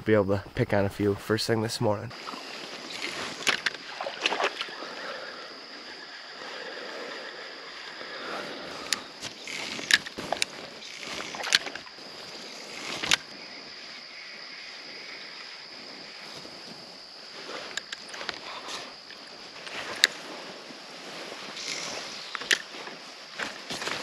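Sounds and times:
river water wash: 2.1s - 24.0s
fishing reel clicks and knocks: 8.9s - 11.8s.

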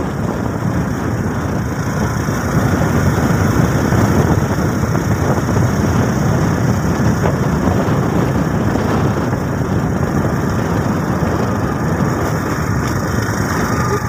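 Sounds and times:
motorcycle engine running: 0.0s - 14.0s
road rumble on gravel: 0.0s - 14.0s
wind: 0.0s - 14.0s.

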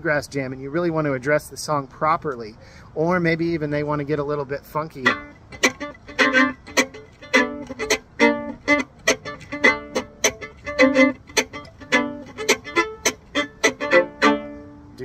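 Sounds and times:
fiddle playing chop rhythm: 3.8s - 15.0s.

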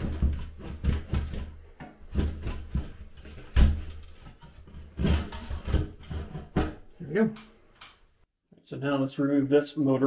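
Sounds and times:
metal scraping against drywall: 0.0s - 6.9s.

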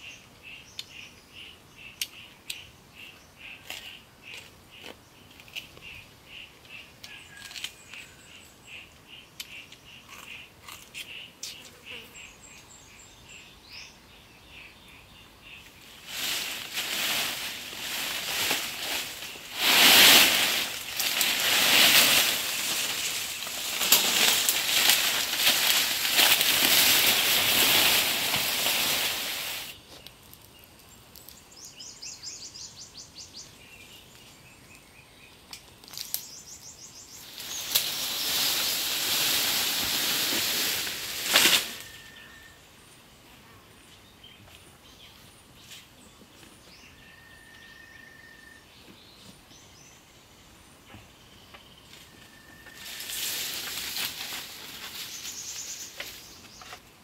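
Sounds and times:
leaves rustling: 15.6s - 31.4s, 37.0s - 42.5s, 51.9s - 57.0s.

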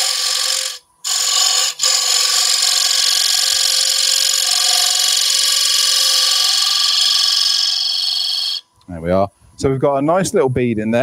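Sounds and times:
lathe cutter hissing on wood: 0.0s - 8.6s.

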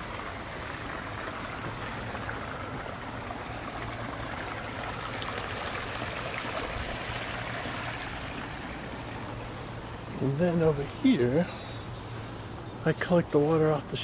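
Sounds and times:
water splashing into pond: 0.0s - 11.2s.

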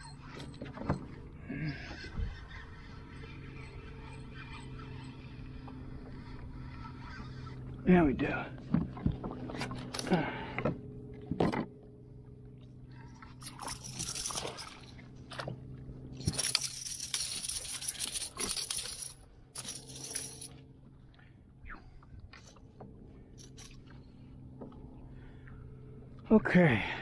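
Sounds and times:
clicks and knocks against hull: 8.6s - 11.8s.

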